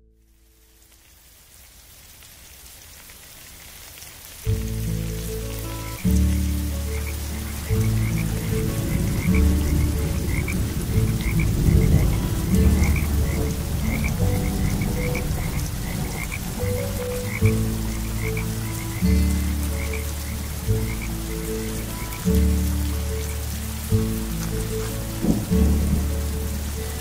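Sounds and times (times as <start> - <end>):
steady rain: 0.0 - 27.0
frogs croaking: 5.5 - 27.0
low sustained tones: 5.8 - 27.0.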